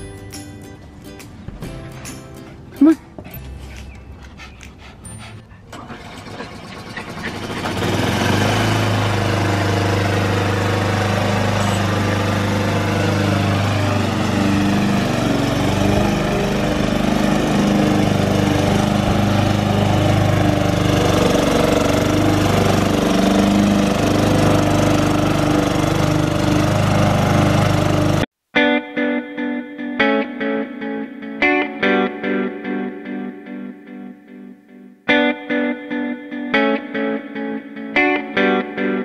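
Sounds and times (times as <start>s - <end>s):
lawn mower engine running: 5.7s - 28.3s.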